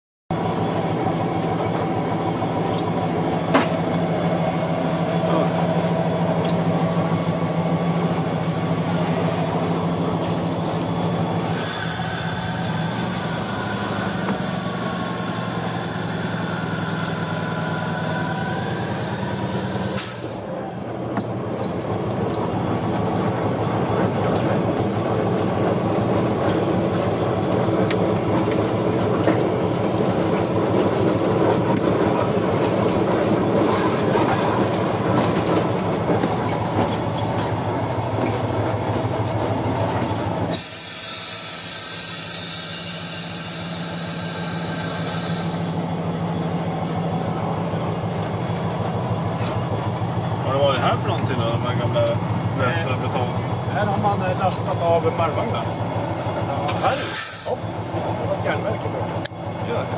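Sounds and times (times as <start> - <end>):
diesel locomotive engine running: 0.3 - 59.9
wheels clacking over rail joints: 0.6 - 5.7, 16.6 - 40.7
loud air hiss: 11.4 - 20.5, 40.5 - 45.9, 56.7 - 58.2.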